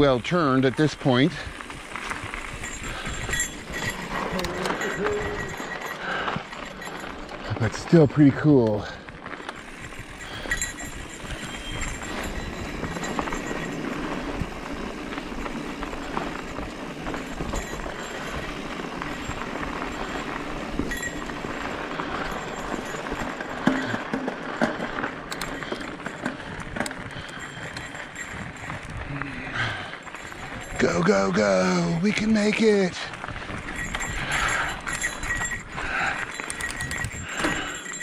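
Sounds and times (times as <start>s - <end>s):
bike clicks and rattles: 0.0s - 38.0s
tyre and wind rush: 32.8s - 38.0s.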